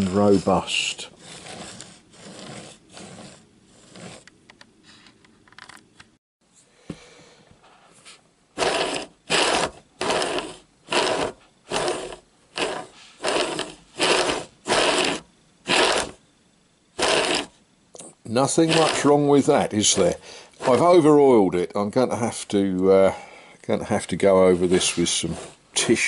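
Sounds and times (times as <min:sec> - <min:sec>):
faint handling and rubbing noises: 0:00.0 - 0:05.4, 0:07.6 - 0:16.2, 0:17.0 - 0:21.5, 0:23.7 - 0:26.0
model train wheels rolling on track: 0:01.2 - 0:04.2, 0:08.6 - 0:16.2, 0:17.0 - 0:17.5, 0:18.5 - 0:21.1, 0:24.3 - 0:26.0.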